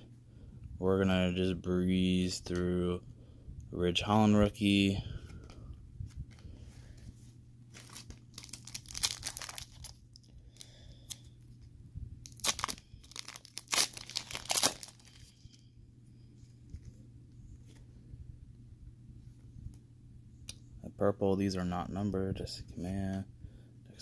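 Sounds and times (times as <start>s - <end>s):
foil wrapper tearing and crinkling: 7.8s - 10.2s, 12.2s - 15.3s.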